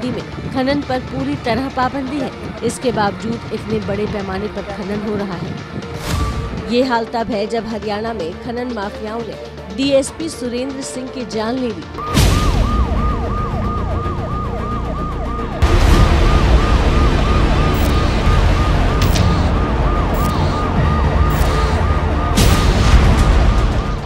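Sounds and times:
police siren sweeping: 12.0 - 24.0
steady rumble: 12.2 - 24.0.

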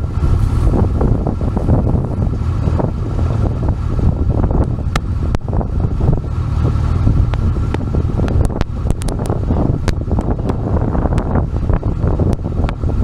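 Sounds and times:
wind buffeting microphone: 0.0 - 13.0
sharp ticks: 4.5 - 5.6, 7.1 - 12.8.

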